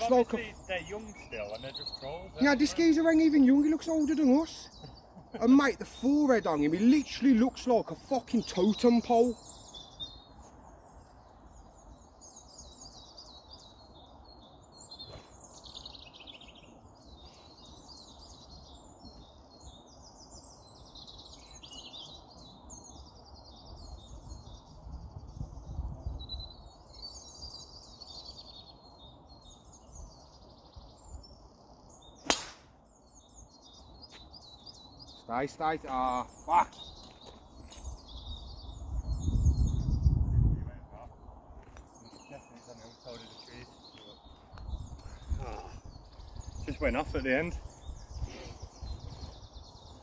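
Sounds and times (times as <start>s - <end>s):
birds singing: 0.0s - 50.0s
golf driver striking ball: 32.2s - 32.7s.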